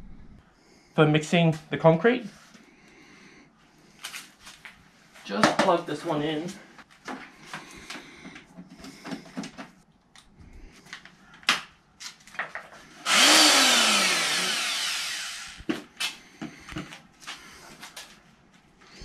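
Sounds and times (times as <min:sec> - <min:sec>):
electric paddle mixer motor: 0:13.0 - 0:15.7.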